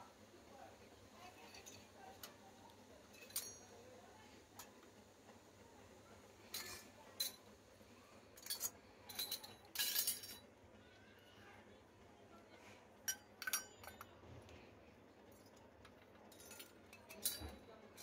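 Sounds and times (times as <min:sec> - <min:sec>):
metal toy utensils clinking: 0:03.2 - 0:03.7, 0:06.5 - 0:07.4, 0:08.4 - 0:10.4, 0:13.1 - 0:14.1, 0:16.3 - 0:18.0.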